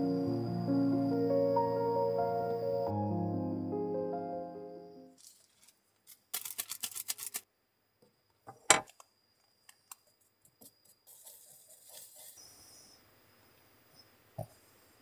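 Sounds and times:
plastic zip bag crinkling: 0:05.2 - 0:07.4.

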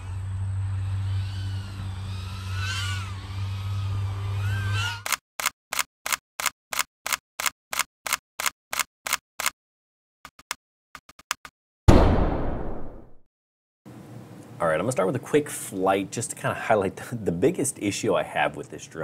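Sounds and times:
low hum: 0:00.0 - 0:05.0.

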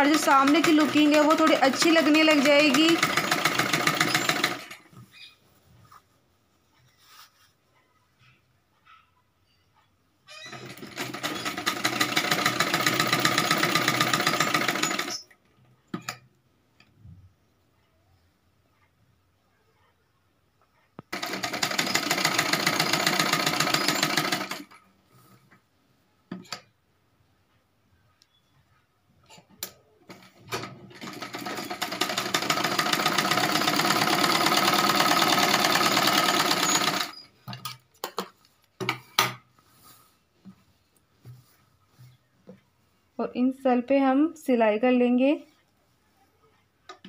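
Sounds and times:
sewing machine stitching: 0:00.0 - 0:04.9, 0:10.5 - 0:16.2, 0:21.1 - 0:24.8, 0:30.1 - 0:37.4
fabric handling: 0:05.0 - 0:07.8, 0:38.4 - 0:43.2.

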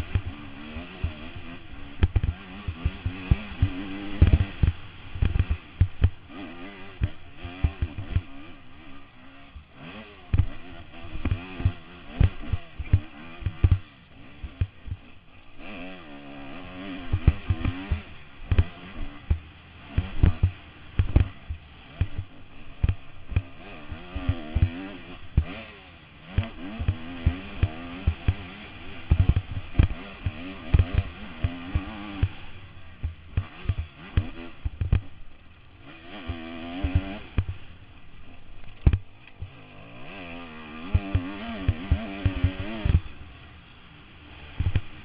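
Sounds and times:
dirt bike engine revving: 0:00.0 - 0:45.0
sharp thumps and knocks: 0:02.0 - 0:06.2, 0:11.2 - 0:13.8, 0:17.1 - 0:23.5, 0:29.1 - 0:35.2, 0:36.2 - 0:37.7, 0:38.6 - 0:39.6, 0:40.9 - 0:43.1, 0:44.6 - 0:45.0.

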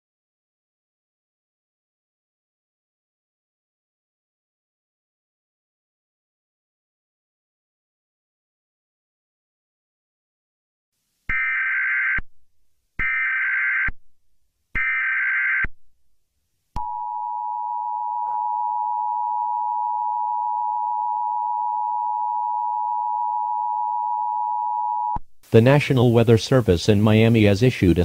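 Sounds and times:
two-tone attention signal: 0:16.8 - 0:25.2.

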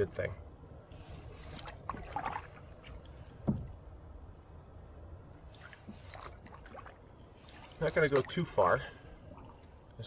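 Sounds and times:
paddle strokes in water: 0:01.0 - 0:03.7, 0:05.4 - 0:09.8
water splashes and drips: 0:01.3 - 0:03.8, 0:05.4 - 0:10.0.

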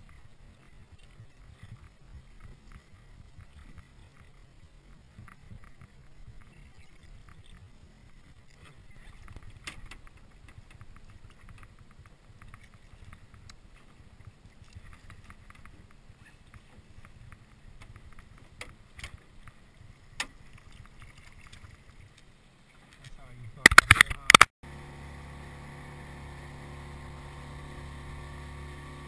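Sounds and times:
wind rumbling on microphone: 0:00.0 - 0:22.4
water against a boat: 0:00.0 - 0:29.0.

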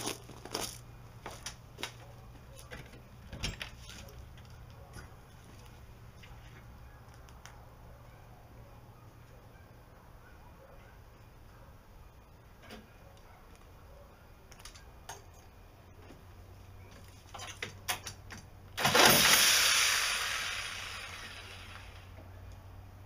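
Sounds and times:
reciprocating saw running: 0:18.8 - 0:22.2.

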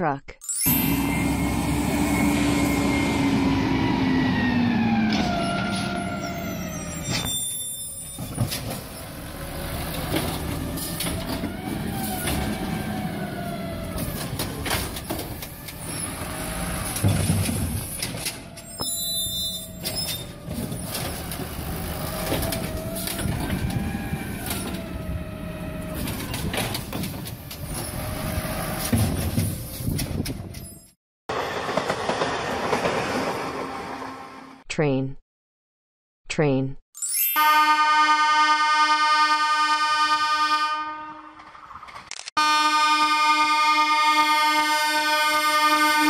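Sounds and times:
hydraulic arm whine: 0:00.6 - 0:28.9
diesel engine revving: 0:00.7 - 0:07.1, 0:08.7 - 0:29.8.

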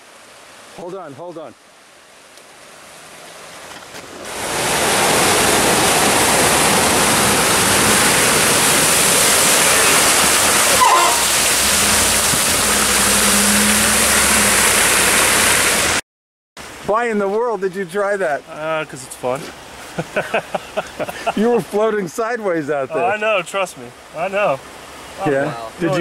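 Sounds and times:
floodwater rushing: 0:00.0 - 0:16.0, 0:16.6 - 0:26.0
water pouring off wheels: 0:03.5 - 0:16.0
truck engine hum: 0:04.6 - 0:16.0.

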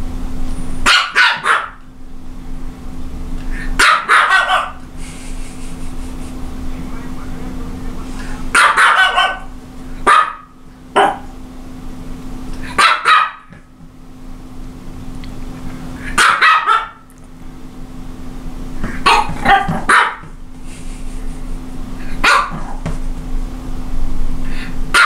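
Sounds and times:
small dog barking: 0:00.8 - 0:01.8, 0:03.8 - 0:04.8, 0:08.5 - 0:11.4, 0:12.7 - 0:13.5, 0:16.1 - 0:17.1, 0:19.0 - 0:20.3, 0:22.2 - 0:22.8.

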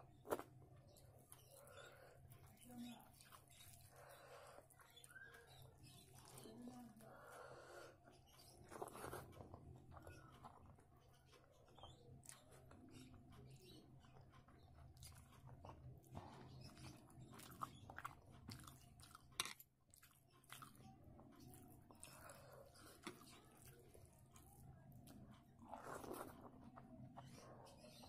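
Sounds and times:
fingers squishing rice: 0:00.0 - 0:28.0
person chewing: 0:00.1 - 0:06.4, 0:08.6 - 0:10.9, 0:14.1 - 0:27.2.

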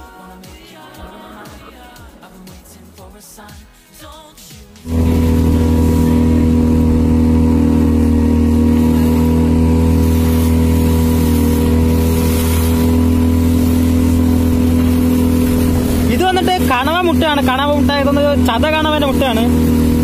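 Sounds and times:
boat engine running steadily: 0:04.8 - 0:20.0.

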